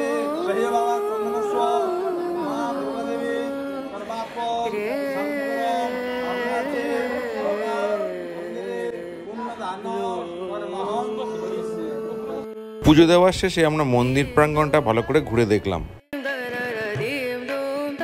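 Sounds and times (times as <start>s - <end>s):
devotional singing with music: 0.0s - 18.0s.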